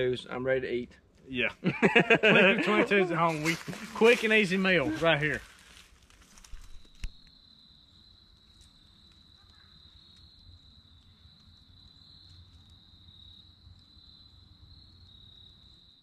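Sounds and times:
high-pitched insect trill: 1.7 - 16.0.

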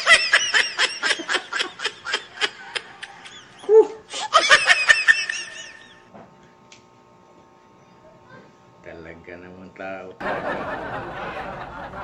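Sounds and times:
man laughing: 0.0 - 6.0.

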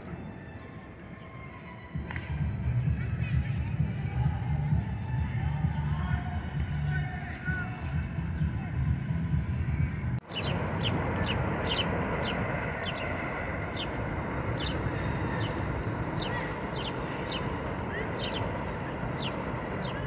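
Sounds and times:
small birds chirping: 6.8 - 20.0
steady low rumble: 7.8 - 20.0.

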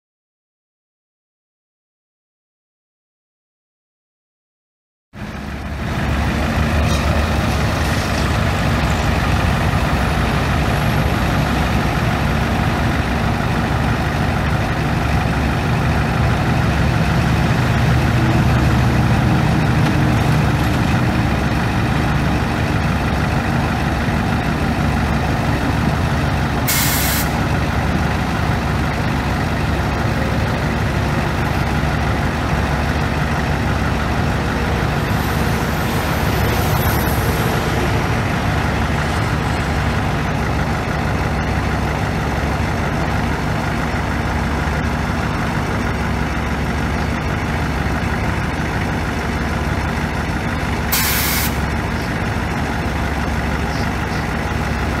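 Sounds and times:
diesel truck engine running: 5.2 - 55.0
air brake hiss: 26.7 - 27.4, 50.9 - 51.6.

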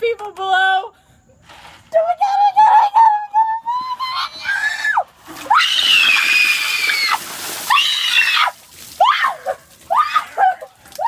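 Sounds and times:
girl screaming: 3.7 - 10.6
water splashing on concrete: 5.0 - 11.0.

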